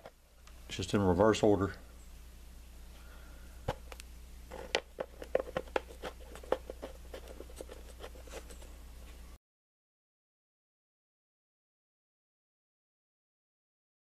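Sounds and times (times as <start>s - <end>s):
low steady hum: 0.0s - 9.4s.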